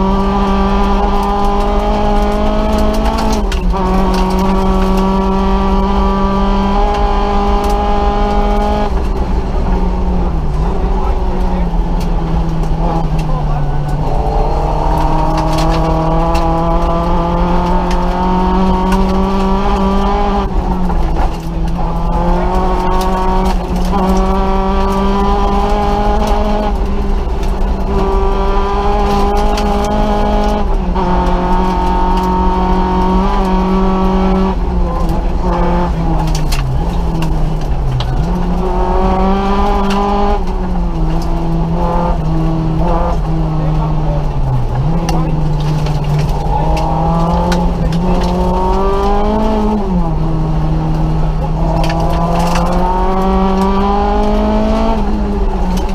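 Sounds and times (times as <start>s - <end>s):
car engine revving through gears: 0.0s - 55.9s
tyre and road noise: 0.0s - 55.9s.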